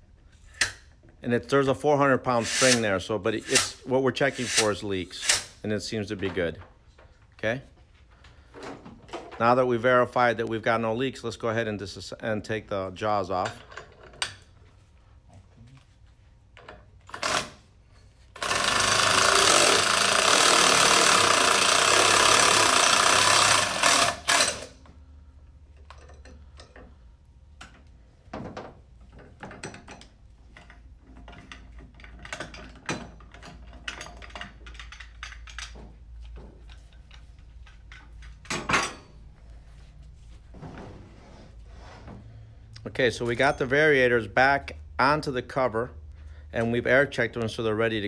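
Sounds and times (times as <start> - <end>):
cordless impact wrench running: 18.3 - 24.8
metal parts knocking and clicking: 29.1 - 39.0.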